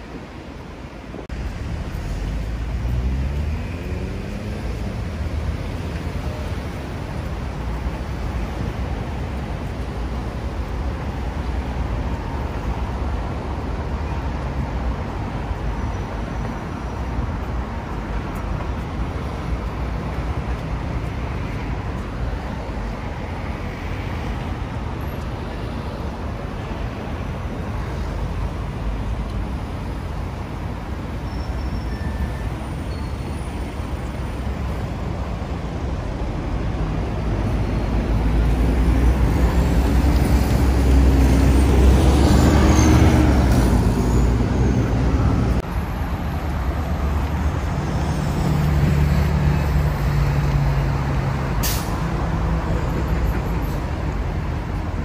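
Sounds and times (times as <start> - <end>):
heavy vehicle engine hum: 0.0 - 55.0
vehicle engine: 1.3 - 11.6.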